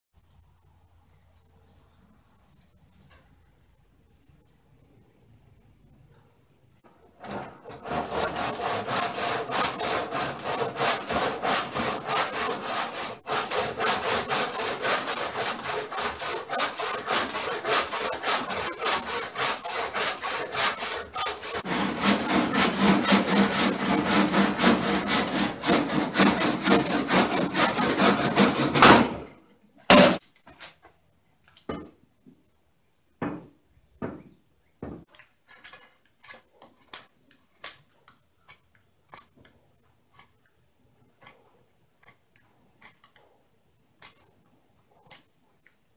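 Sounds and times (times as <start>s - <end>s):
hand saw cutting wood: 6.9s - 29.3s, 29.9s - 30.2s
knocks and taps: 33.2s - 35.1s.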